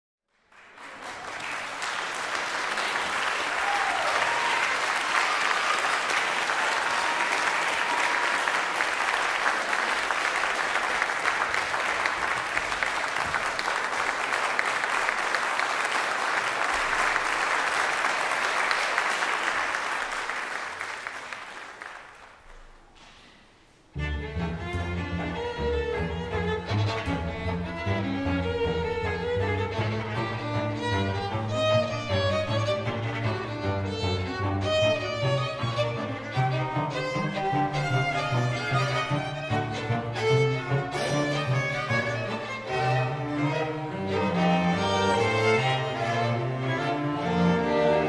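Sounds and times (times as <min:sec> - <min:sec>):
audience applauding: 0:00.4 - 0:22.9, 0:36.8 - 0:43.6.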